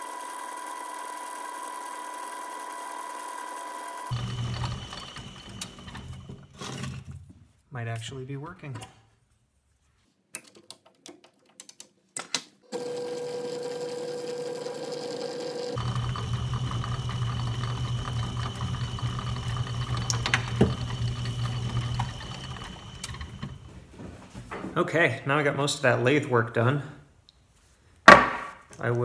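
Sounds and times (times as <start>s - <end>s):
metal lathe whirring: 0.0s - 6.6s, 12.7s - 23.7s.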